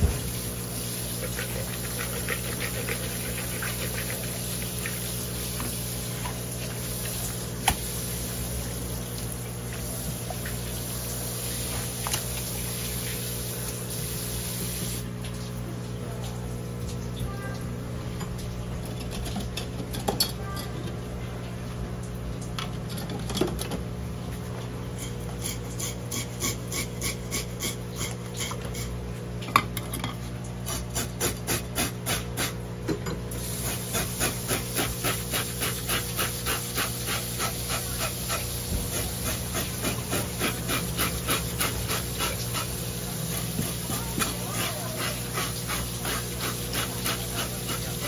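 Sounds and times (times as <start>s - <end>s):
knife scraping fish skin: 1.1s - 4.5s, 25.0s - 28.9s, 30.6s - 32.6s, 33.6s - 48.0s.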